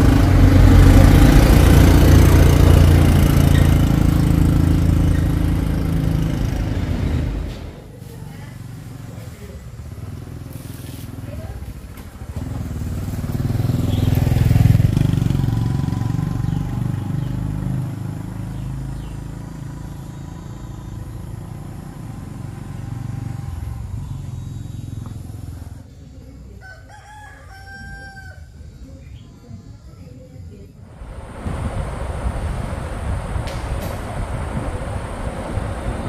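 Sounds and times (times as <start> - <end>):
engine running: 0.0 - 26.6, 30.8 - 36.0
rooster crowing: 26.5 - 28.7.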